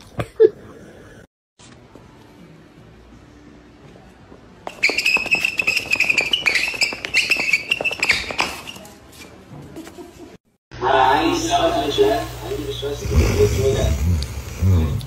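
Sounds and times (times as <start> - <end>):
dog feet scrambling: 4.7 - 9.0.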